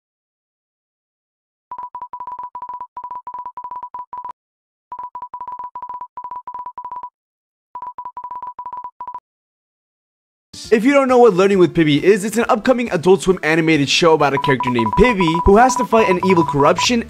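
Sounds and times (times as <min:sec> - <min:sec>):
rapid short electronic beeps: 0:14.4 - 0:17.0.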